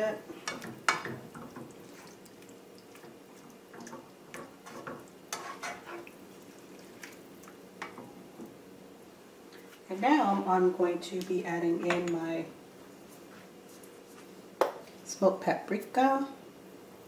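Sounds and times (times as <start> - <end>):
spatula stirring: 0.0 - 8.6
faint steady hum: 0.0 - 17.0
sauce simmering with pops: 0.4 - 8.9.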